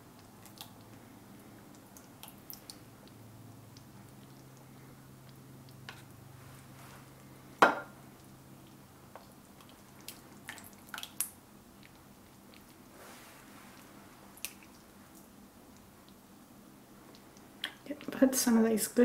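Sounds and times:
sauce sloshing while stirred: 0:08.0 - 0:15.8.

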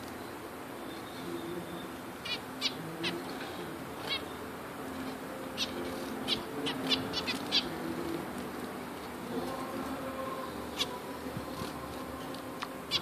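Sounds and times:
finches calling: 0:00.8 - 0:08.4, 0:10.6 - 0:11.1.

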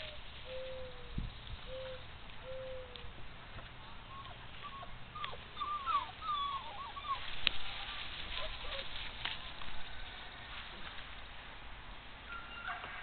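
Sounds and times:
high-pitched animal calls: 0:04.1 - 0:08.9.

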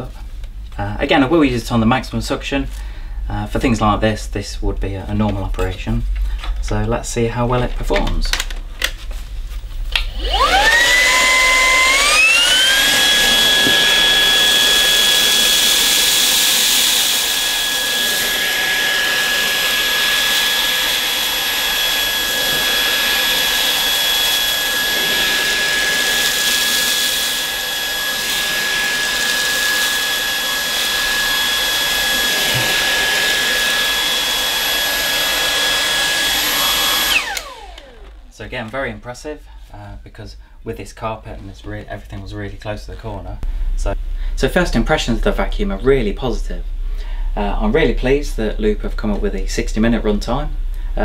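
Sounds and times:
vacuum cleaner whining: 0:09.9 - 0:38.5.

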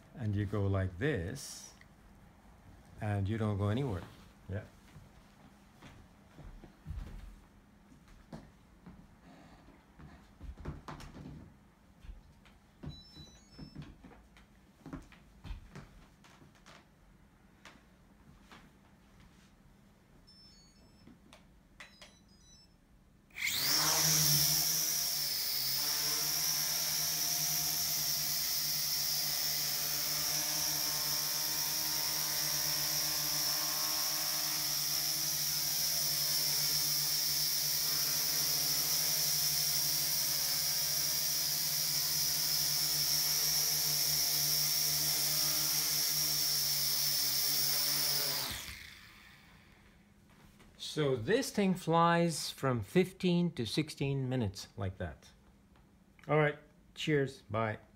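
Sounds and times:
quadcopter motors whining: 0:23.4 - 0:49.7.

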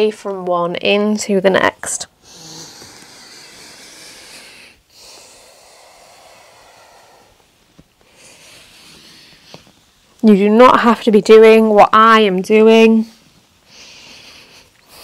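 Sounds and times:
woman breathing slowly: 0:02.1 - 0:10.1, 0:13.2 - 0:15.0.

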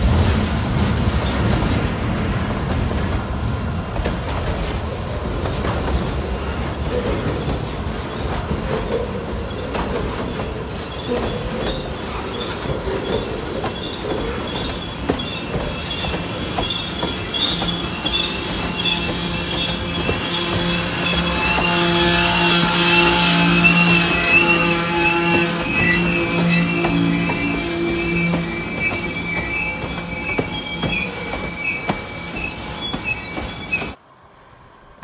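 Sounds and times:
model train wheels rumbling: 0:00.0 - 0:34.0
high-pitched wheel squeal: 0:10.2 - 0:34.0.

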